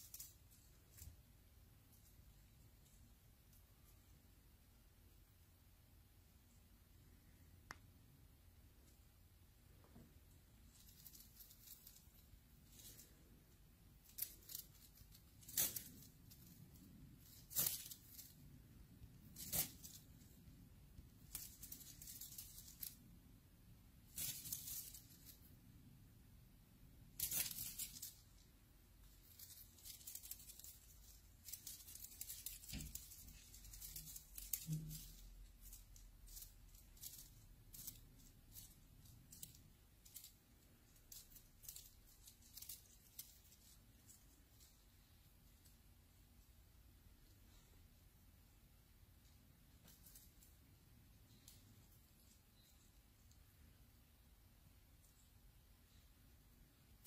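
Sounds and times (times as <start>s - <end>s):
crinkling and rustling: 0.0s - 4.8s, 8.8s - 26.2s, 26.8s - 56.1s
sharp crackles: 10.5s - 26.0s, 26.9s - 45.8s
small scattered ticks: 10.6s - 23.2s, 24.0s - 25.6s, 27.1s - 46.3s.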